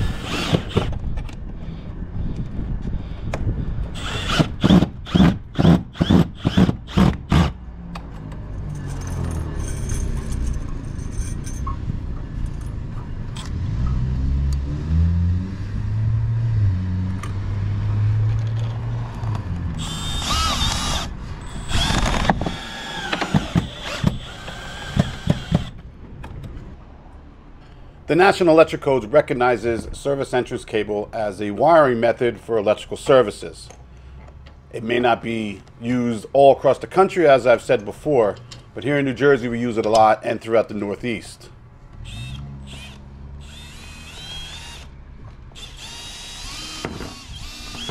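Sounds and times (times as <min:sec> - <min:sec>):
power drill driving screws: 0:00.0 - 0:01.0, 0:04.0 - 0:07.6, 0:19.8 - 0:25.7, 0:42.0 - 0:44.9, 0:45.6 - 0:47.9.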